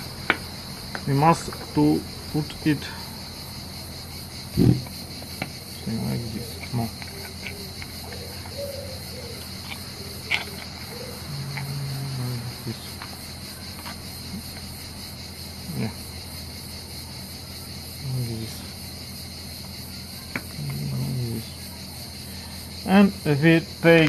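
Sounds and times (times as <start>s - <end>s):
steady high-pitched hiss: 0.0s - 24.0s
low murmurs: 5.8s - 13.1s, 20.1s - 22.1s.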